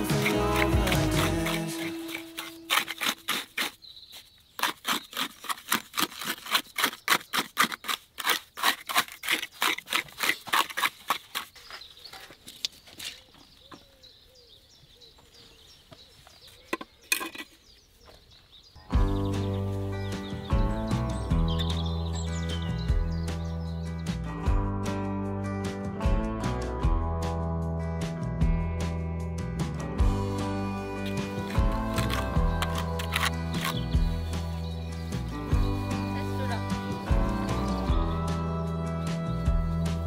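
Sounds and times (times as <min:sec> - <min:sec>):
music: 0:00.0 - 0:03.0, 0:18.8 - 0:40.0
trowel scraping wet mortar: 0:00.0 - 0:13.2, 0:31.0 - 0:35.6.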